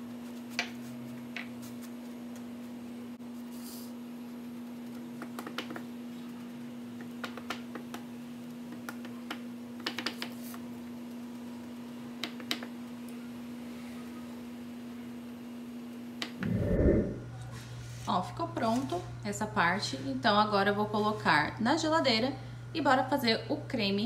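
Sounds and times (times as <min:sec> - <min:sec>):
steady low hum: 0:16.4 - 0:17.5.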